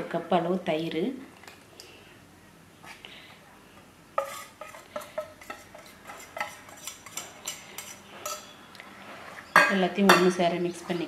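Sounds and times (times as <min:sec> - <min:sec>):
whisk and cup clinking on bowl: 0:04.2 - 0:08.5.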